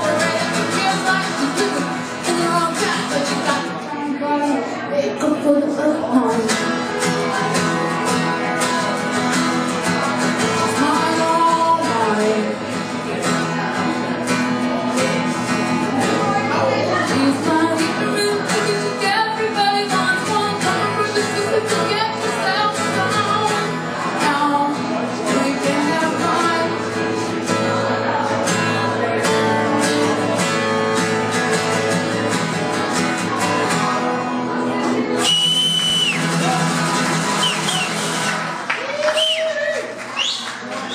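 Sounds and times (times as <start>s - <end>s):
woman singing: 0.0s - 6.8s, 10.4s - 12.6s, 16.9s - 27.1s
acoustic guitar strumming: 0.0s - 38.7s.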